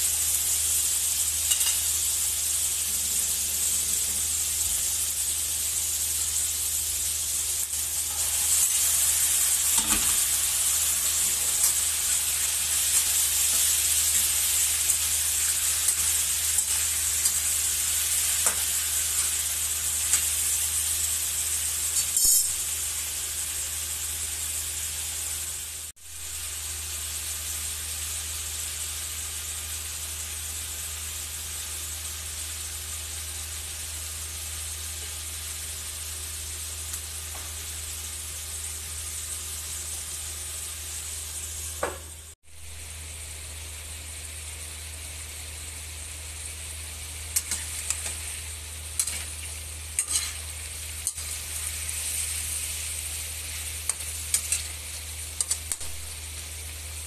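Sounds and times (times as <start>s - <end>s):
food sizzling in a wok: 0.0s - 57.0s
spatula scraping pan: 47.4s - 52.8s.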